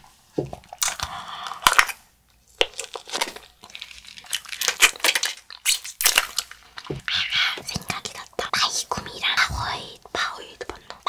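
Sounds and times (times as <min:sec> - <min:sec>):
chewing gummy candy: 0:00.6 - 0:08.4.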